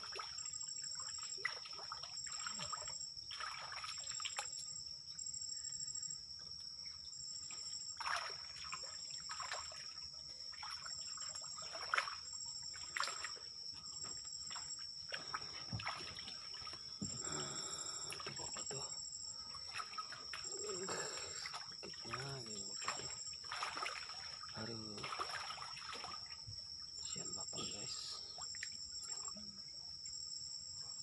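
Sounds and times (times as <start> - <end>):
pulsing insect call: 0.0 - 31.0
water splashing and sloshing: 0.0 - 31.0
high-pitched insect drone: 7.0 - 31.0.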